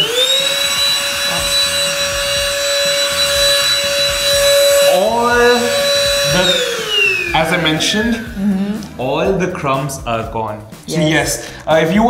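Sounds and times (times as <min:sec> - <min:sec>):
handheld vacuum cleaner whine: 0:00.0 - 0:08.4.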